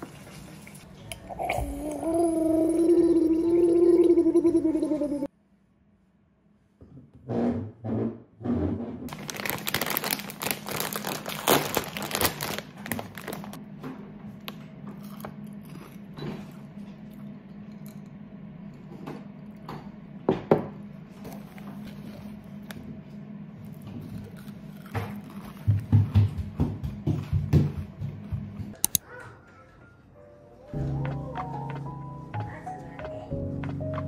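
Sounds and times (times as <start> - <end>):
plastic bag crinkling: 9.1 - 13.6.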